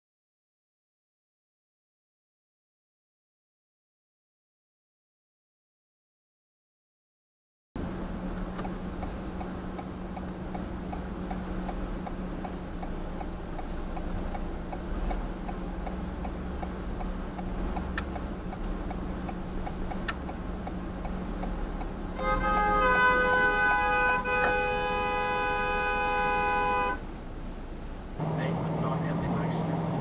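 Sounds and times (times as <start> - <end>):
turn signal clicking: 7.8 - 25.1
sharp clicks: 8.4 - 21.9.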